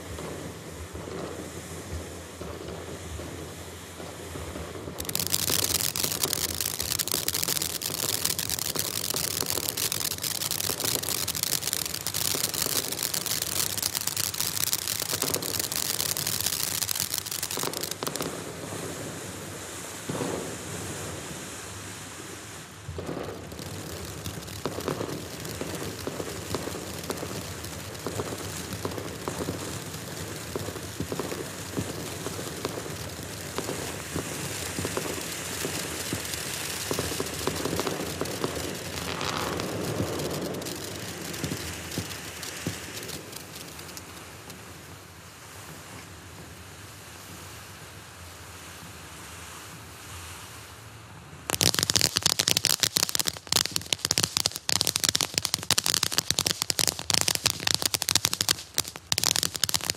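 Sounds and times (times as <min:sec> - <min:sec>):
firework fountain hissing: 0:00.0 - 0:59.9
rapid crackling pops: 0:04.4 - 0:19.4, 0:22.9 - 0:44.8, 0:51.5 - 0:59.9.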